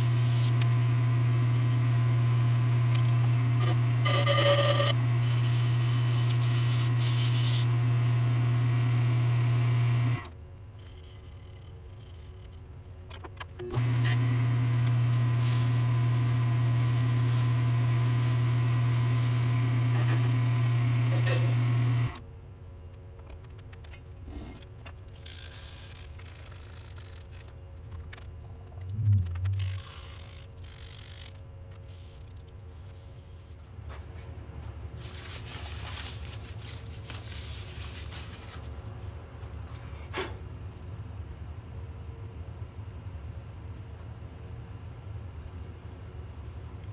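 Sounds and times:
wood lathe motor humming: 0:00.0 - 0:10.3, 0:13.8 - 0:22.2
rustling and scraping handling: 0:23.2 - 0:40.1
steady low hum: 0:27.5 - 0:35.3.

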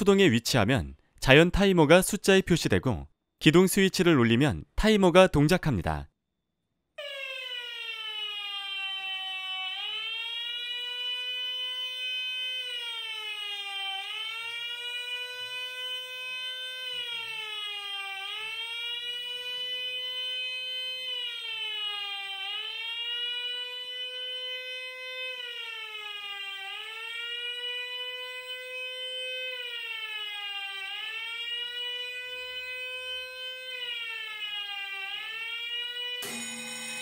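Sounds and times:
electronic alarm siren gliding: 0:07.0 - 0:37.0.

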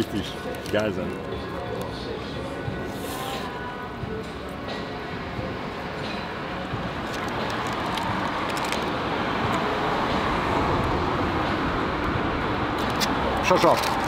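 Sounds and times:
street traffic noise: 0:00.0 - 0:14.0
vehicle passing: 0:06.6 - 0:14.0.

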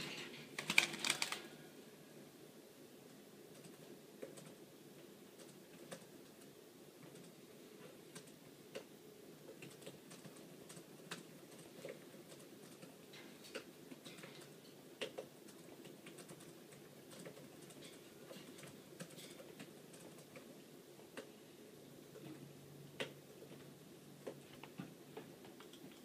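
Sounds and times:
small clicks and light taps: 0:22.1 - 0:26.0.

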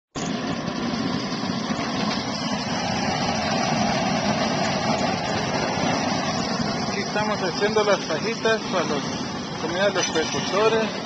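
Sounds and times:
gas burner flame rushing: 0:00.2 - 0:11.0.

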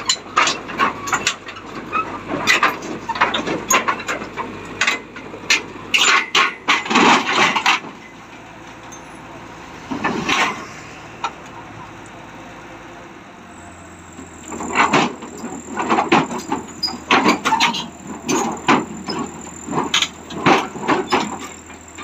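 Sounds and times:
steel tracks clanking and squealing: 0:00.0 - 0:12.8, 0:13.4 - 0:22.0
engine running low: 0:00.0 - 0:22.0.

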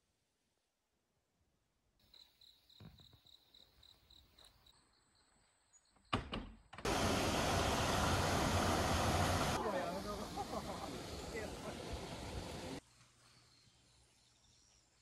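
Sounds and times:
crickets chirping: 0:02.0 - 0:06.1
stream and small waterfall rushing: 0:06.9 - 0:12.8.

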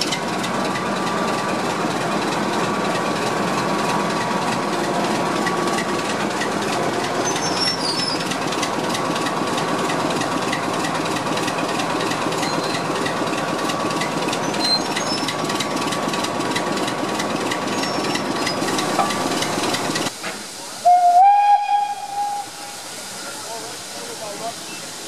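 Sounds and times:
diesel locomotive idling: 0:00.0 - 0:25.0
steam hissing: 0:00.0 - 0:25.0
steam locomotive whistle: 0:20.8 - 0:22.9.

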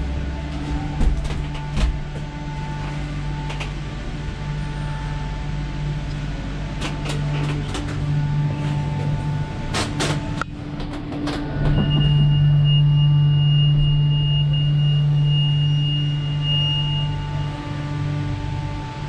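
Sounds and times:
cable car machinery hum: 0:00.0 - 0:19.0
high steady whine: 0:00.0 - 0:19.0.

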